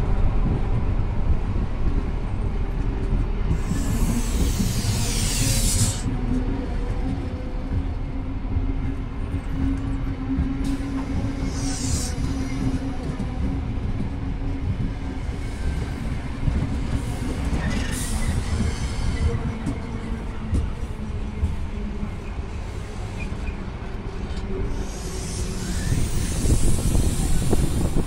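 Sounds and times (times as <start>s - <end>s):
train rumbling: 0.0s - 28.0s
high screeches: 3.7s - 6.0s.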